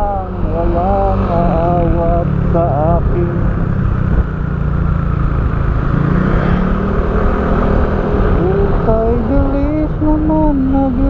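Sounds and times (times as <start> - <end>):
person singing: 0.0 - 3.6, 8.4 - 11.0
motorcycle engine cruising: 0.0 - 11.0
road noise: 0.0 - 11.0.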